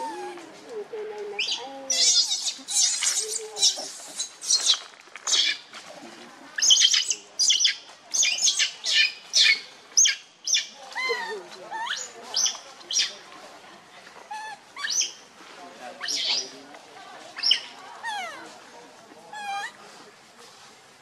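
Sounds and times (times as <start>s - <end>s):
monkey coos: 0.0s - 5.6s, 6.6s - 13.1s, 14.3s - 15.2s, 17.4s - 18.6s, 19.3s - 19.8s
monkeys squealing: 1.4s - 5.6s, 6.6s - 13.1s, 14.3s - 15.1s, 16.0s - 16.5s, 17.4s - 18.4s, 19.4s - 19.7s.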